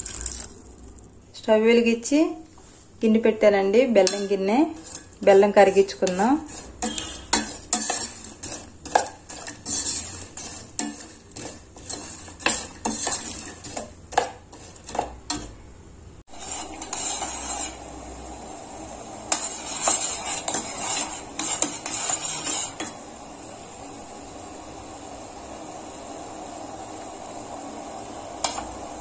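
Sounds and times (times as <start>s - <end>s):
syrup bubbling: 0.0s - 1.2s.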